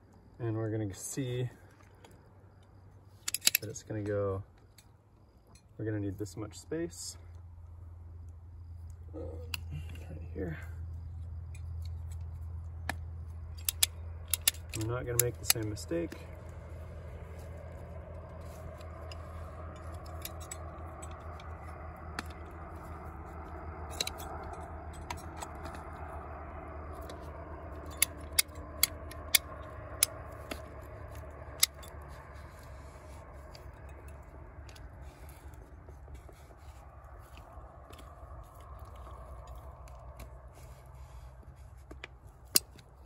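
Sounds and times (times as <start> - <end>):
ratcheting pipe cutter clicks: 3.2 - 3.8, 13.6 - 16.2, 27.8 - 32.0.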